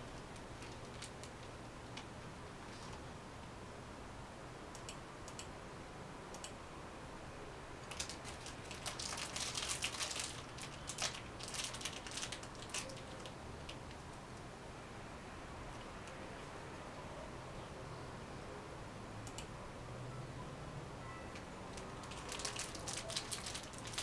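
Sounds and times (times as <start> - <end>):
object crinkling in hands: 0.0 - 3.0, 7.9 - 14.0, 21.7 - 24.0
computer mouse clicks: 4.7 - 5.5, 6.3 - 6.6, 19.2 - 19.5.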